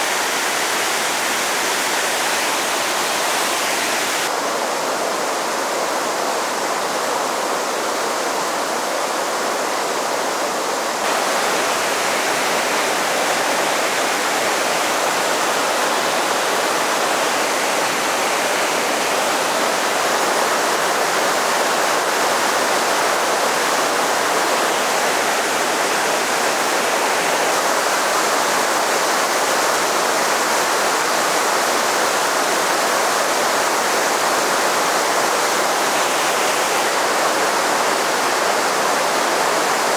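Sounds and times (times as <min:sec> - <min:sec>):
river rapids rushing over boulders: 0:00.0 - 0:39.9.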